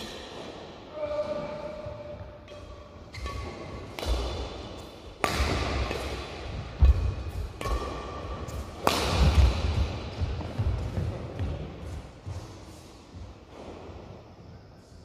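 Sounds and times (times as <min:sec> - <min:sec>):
rackets striking shuttlecock: 0:02.1 - 0:11.6.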